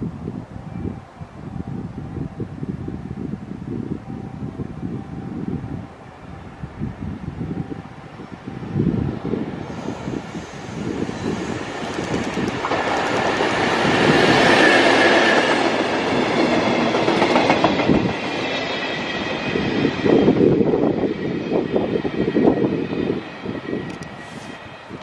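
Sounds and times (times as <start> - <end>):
electric locomotive passing: 0.0 - 25.0
train wheels clacking over rail joints: 11.7 - 18.2.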